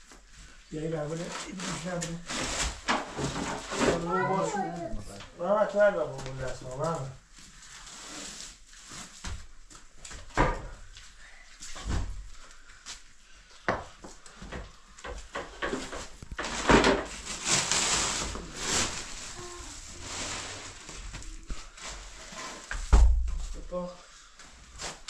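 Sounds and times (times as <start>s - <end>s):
sack fabric rustling: 17.2s - 22.7s.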